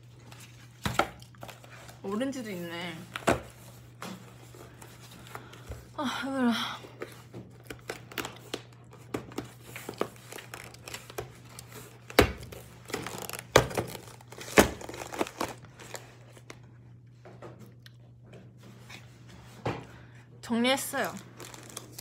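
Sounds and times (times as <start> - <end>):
wrappers crinkling and rustling: 7.2 - 16.6, 20.8 - 22.0.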